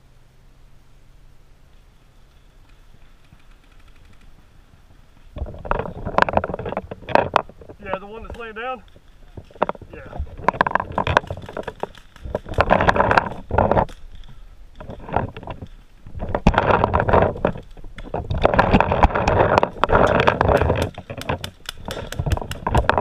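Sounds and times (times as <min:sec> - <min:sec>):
paintball markers popping: 0:19.8 - 0:23.0.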